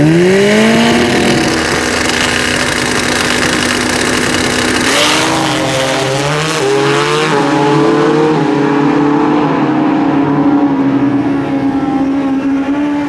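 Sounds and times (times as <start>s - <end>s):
motorcycles revving and accelerating: 0.0s - 13.0s.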